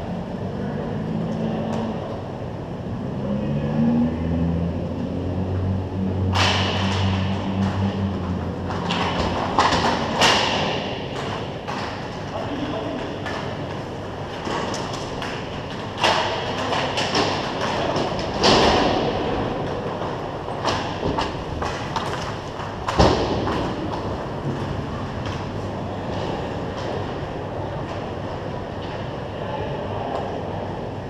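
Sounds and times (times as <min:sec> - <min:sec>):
hockey sticks and puck knocking: 0:06.3 - 0:25.6.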